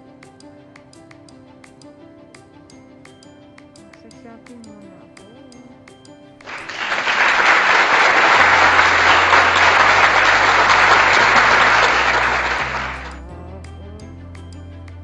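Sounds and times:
crowd clapping: 0:06.4 - 0:13.2
background music with bass line: 0:08.6 - 0:15.0.

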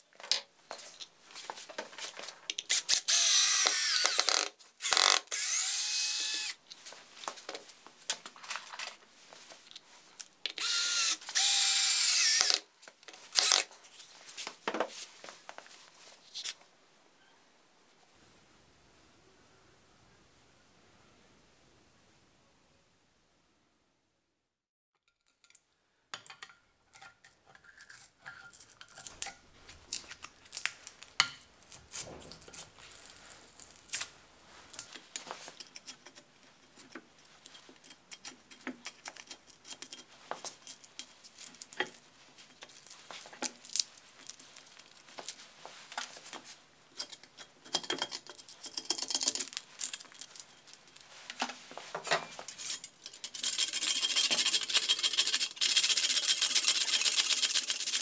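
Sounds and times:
flat blade rasping: 0:52.5 - 0:58.0.

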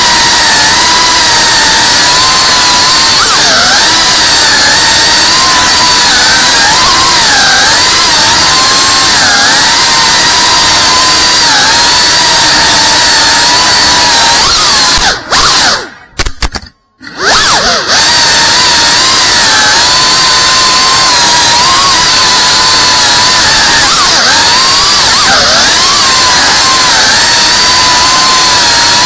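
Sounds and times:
drone motors whining: 0:00.0 - 0:29.0.

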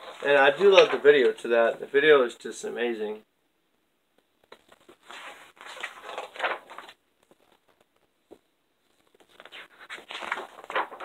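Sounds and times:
paper pages rustling: 0:00.0 - 0:01.4, 0:04.4 - 0:11.0.

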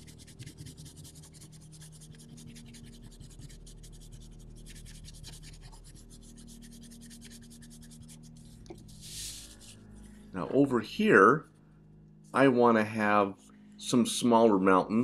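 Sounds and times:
crayon scrubbing on paper: 0:00.0 - 0:10.1.

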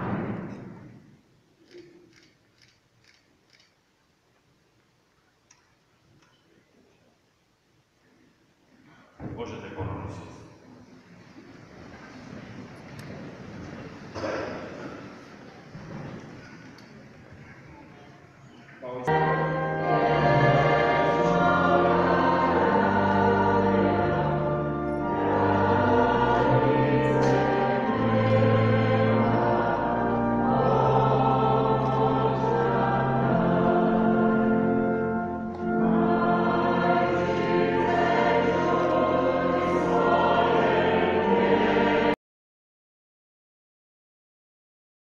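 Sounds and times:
choir singing hymn: 0:18.9 - 0:42.2.

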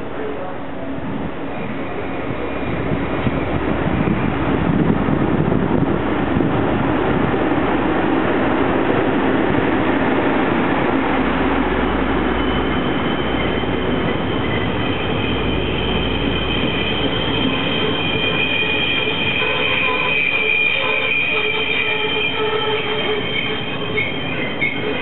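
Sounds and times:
train wheels rumbling on rails: 0:00.0 - 0:25.0
high wheel squeal: 0:11.9 - 0:25.0.

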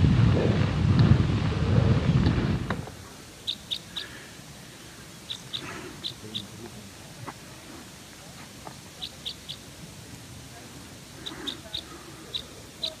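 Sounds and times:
low tyre rumble on snow: 0:00.0 - 0:03.1
wind buffeting microphone: 0:00.0 - 0:03.4
bird chirping: 0:03.4 - 0:04.2, 0:05.1 - 0:06.7, 0:08.9 - 0:09.7, 0:11.2 - 0:13.0.

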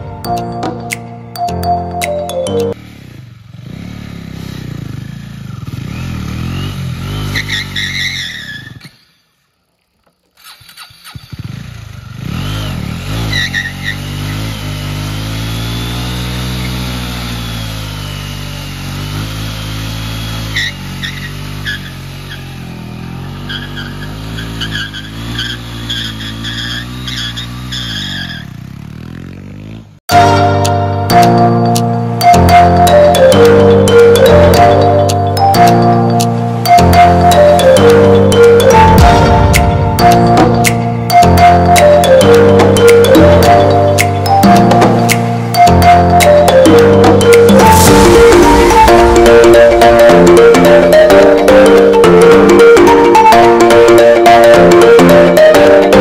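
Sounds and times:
motorcycle engine revving: 0:02.8 - 0:09.2, 0:10.3 - 0:30.0
tyre squealing on asphalt: 0:06.4 - 0:11.7, 0:12.3 - 0:14.6, 0:19.9 - 0:29.1.

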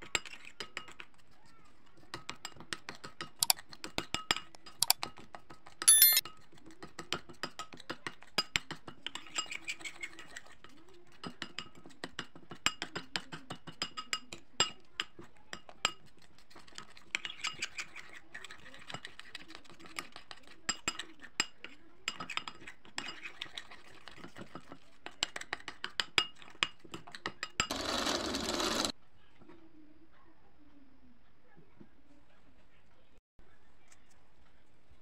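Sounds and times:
spoon stirring and scraping ceramic bowl: 0:00.0 - 0:27.8
loud ringing spoon clink: 0:05.9 - 0:06.2.

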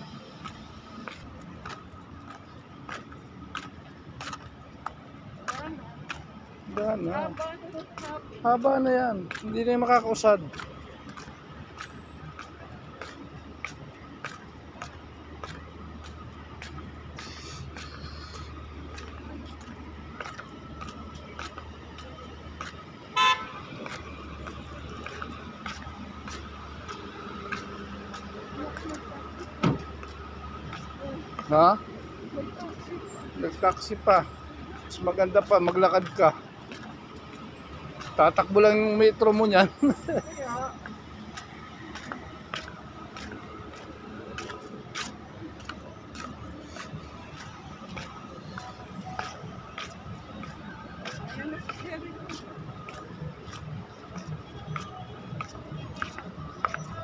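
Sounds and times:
traffic rumble: 0:00.0 - 0:57.0
car horn toot: 0:23.2 - 0:23.8.

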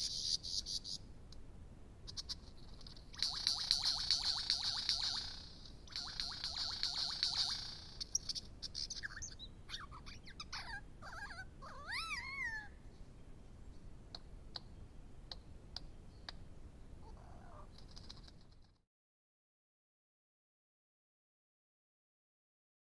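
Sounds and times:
lyrebird singing: 0:00.0 - 0:01.1, 0:02.0 - 0:18.8
sharp bird clicks: 0:02.1 - 0:10.5, 0:14.1 - 0:16.5, 0:17.1 - 0:18.8.

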